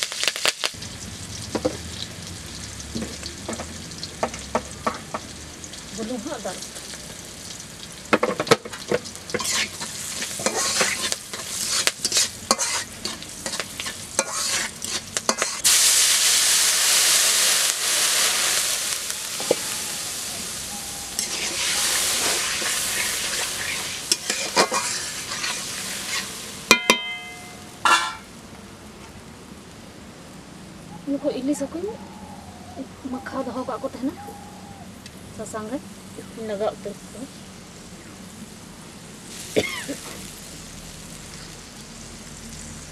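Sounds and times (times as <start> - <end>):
chillies frying in oil: 0.0 - 31.8, 35.3 - 42.9
loud sizzle: 0.0 - 31.9, 34.8 - 42.9
spatula stirring and scraping: 9.3 - 15.7, 21.2 - 26.4
sharp metal knocks: 26.7 - 28.3.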